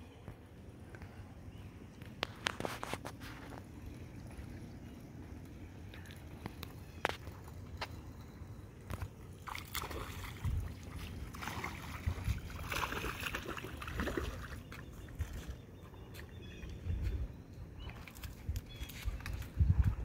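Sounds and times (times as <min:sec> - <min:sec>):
fish splashing in water: 0:09.3 - 0:15.3.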